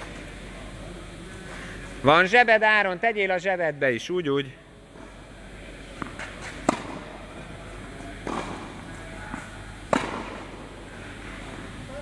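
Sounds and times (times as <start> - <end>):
balls bouncing on court: 6.0 - 7.2, 8.2 - 10.7
tennis racket hitting ball: 6.0 - 7.2, 8.2 - 10.7.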